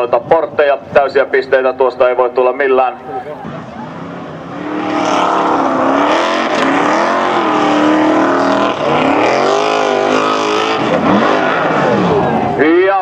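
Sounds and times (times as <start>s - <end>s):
buggy engine revving hard: 3.4s - 13.0s.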